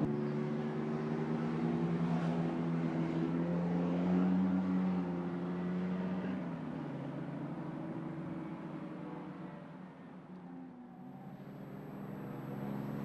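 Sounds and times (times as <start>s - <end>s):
sports car engine high revs: 11.0s - 13.0s.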